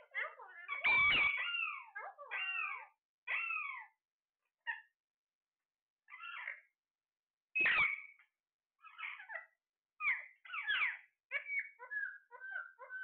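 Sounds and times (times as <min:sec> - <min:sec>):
parakeets calling: 0:00.0 - 0:04.0, 0:06.1 - 0:06.7, 0:07.6 - 0:13.0.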